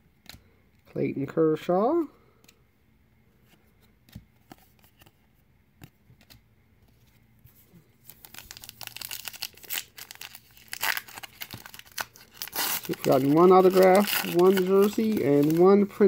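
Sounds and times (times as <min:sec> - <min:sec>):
card pack wrapper crinkling and tearing: 0:08.0 - 0:16.0.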